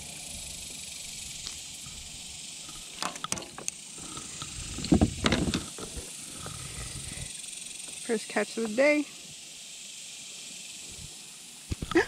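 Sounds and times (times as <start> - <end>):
steady high hiss: 0.0 - 12.0
fishing gear knocking and rattling: 2.7 - 6.6.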